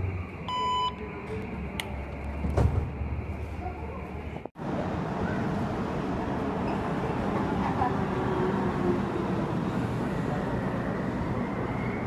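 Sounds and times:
card reader beep: 0.5s - 1.0s
thud: 2.4s - 3.0s
people talking: 3.6s - 4.5s, 6.7s - 9.4s.

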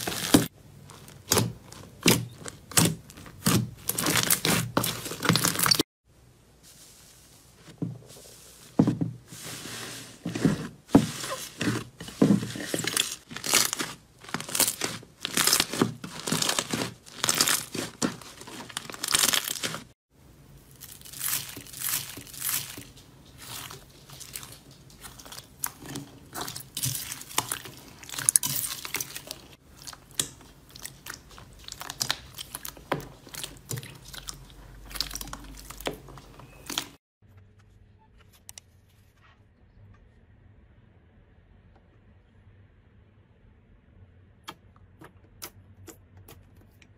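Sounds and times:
slime crackling and popping: 0.0s - 5.8s, 13.0s - 19.9s, 20.7s - 35.9s
crunchy slime squishing: 0.0s - 5.9s, 10.2s - 37.0s.

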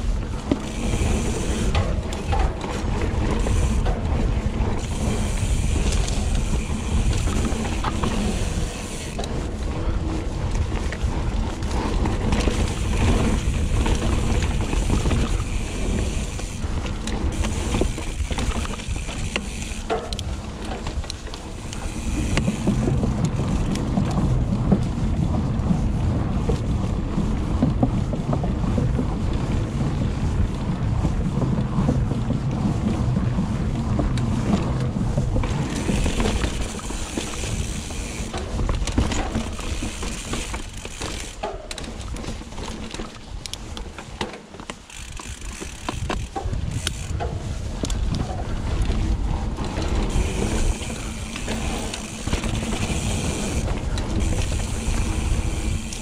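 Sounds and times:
bike hub freewheeling buzz: 0.0s - 26.0s, 32.8s - 42.4s, 44.6s - 56.0s
wind rumble on microphone: 0.0s - 56.0s
tyres and chain rattling: 35.4s - 43.3s, 44.0s - 47.4s, 49.6s - 56.0s.

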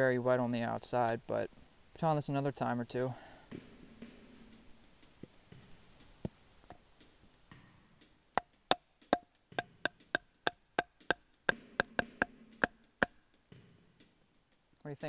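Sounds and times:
wooden baton striking knife spine: 8.4s - 13.1s.

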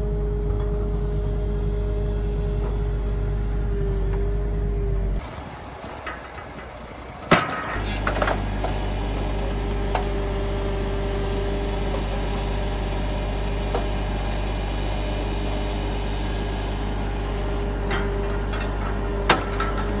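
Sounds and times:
diesel engine humming with whine: 0.0s - 20.0s
metal clanks: 5.8s - 8.8s, 17.9s - 20.0s.

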